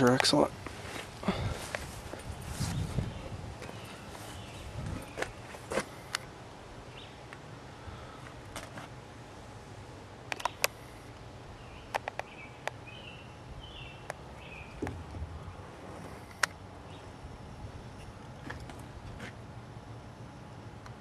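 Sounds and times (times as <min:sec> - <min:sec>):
outdoor background hum: 0:00.0 - 0:21.0
bird chirps: 0:11.6 - 0:14.8.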